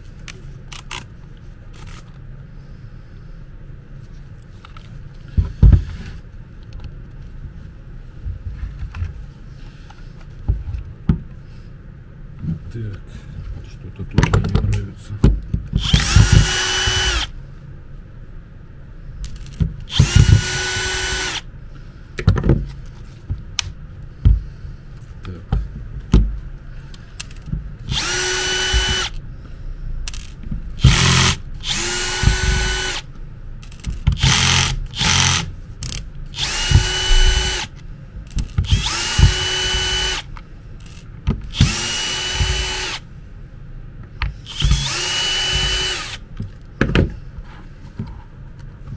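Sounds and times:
cordless drill running: 0:15.8 - 0:17.3, 0:19.9 - 0:21.5, 0:27.9 - 0:29.2, 0:30.8 - 0:33.1, 0:33.8 - 0:35.5, 0:36.4 - 0:37.7, 0:38.6 - 0:40.3, 0:40.9 - 0:43.0, 0:44.4 - 0:46.2.

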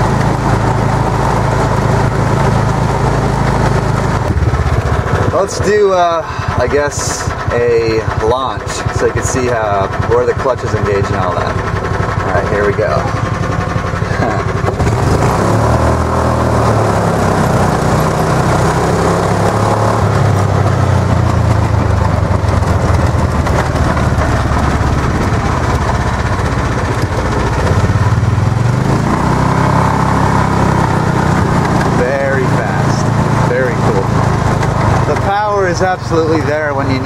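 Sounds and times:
small engine revving hard: 0:14.1 - 0:20.4, 0:27.6 - 0:36.9.

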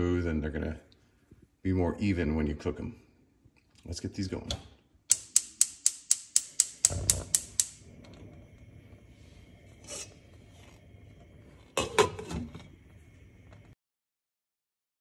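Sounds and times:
spark igniter clicking: 0:05.1 - 0:07.9
burner faint steady hum: 0:05.1 - 0:13.8
glass pot lid clatter: 0:11.7 - 0:12.6.

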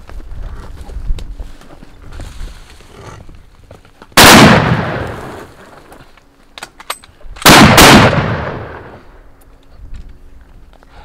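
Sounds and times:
rifle shots echoing: 0:04.2 - 0:05.5, 0:07.4 - 0:09.1
metallic rifle clicks: 0:06.5 - 0:07.6.

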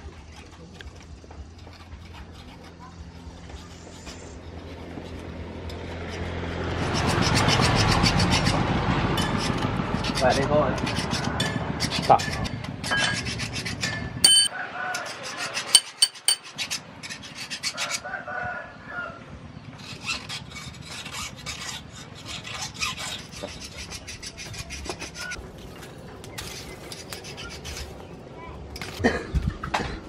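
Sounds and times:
metal tools clicking and scraping: 0:11.4 - 0:15.1, 0:15.7 - 0:17.2
sharp metallic clink: 0:14.2 - 0:14.5, 0:15.8 - 0:16.5.

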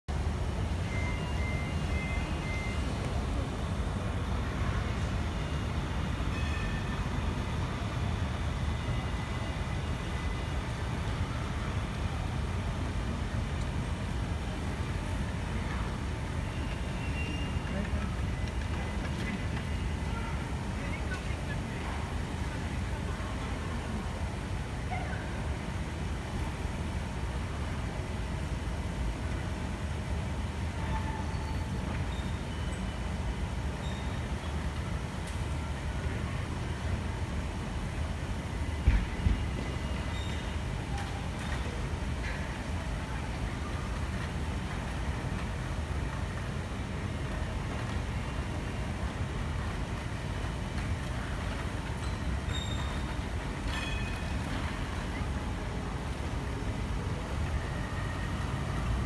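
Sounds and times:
tram rumbling and humming: 0:00.1 - 0:59.0.

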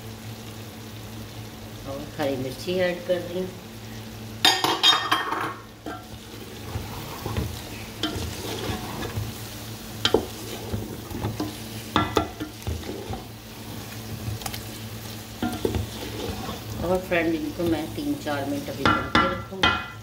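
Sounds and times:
curry sizzling: 0:00.0 - 0:20.0
low steady hum: 0:00.0 - 0:20.0
wooden spatula scraping pot: 0:05.9 - 0:19.4
spatula knocking on pot: 0:12.0 - 0:12.8, 0:18.8 - 0:20.0.

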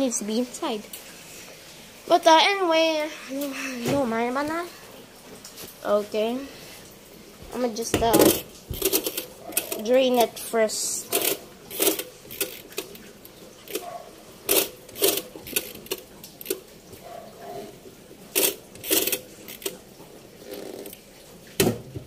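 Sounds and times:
washing machine controls clicking: 0:07.9 - 0:10.3, 0:11.0 - 0:16.7, 0:18.3 - 0:19.8.

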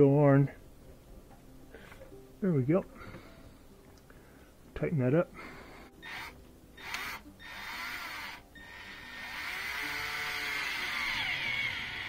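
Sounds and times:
cordless drill driving screw: 0:06.0 - 0:12.0.

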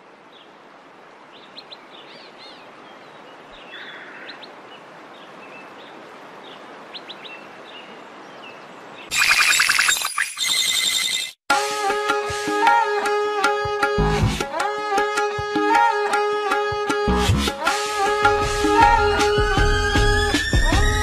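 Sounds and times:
birds chirping: 0:01.3 - 0:11.4
loud music: 0:17.1 - 0:21.0.

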